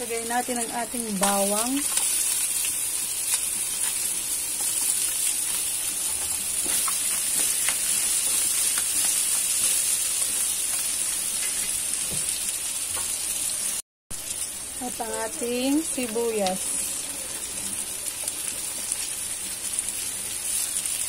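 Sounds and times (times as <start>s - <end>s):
garlic sizzling in oil: 0.0s - 21.0s.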